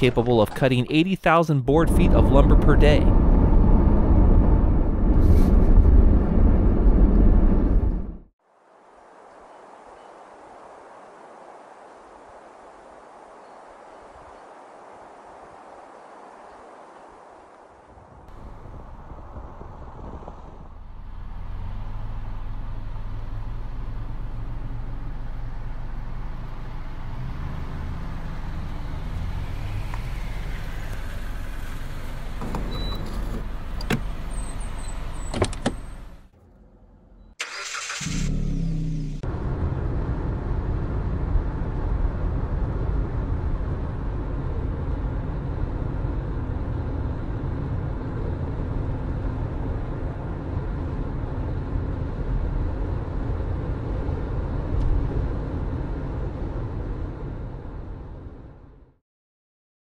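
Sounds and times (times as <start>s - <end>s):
engine and road rumble: 0.0s - 59.0s
car engine humming: 18.3s - 41.1s.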